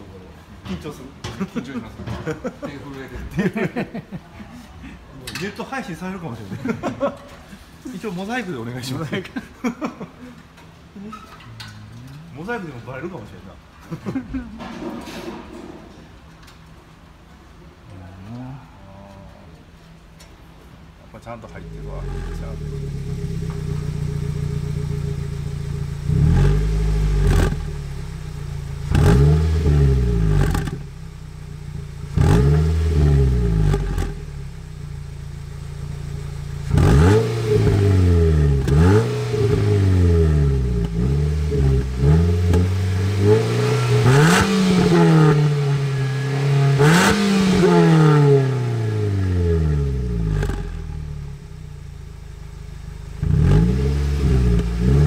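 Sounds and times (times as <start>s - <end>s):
car exhaust idling and revving: 21.5s - 55.0s.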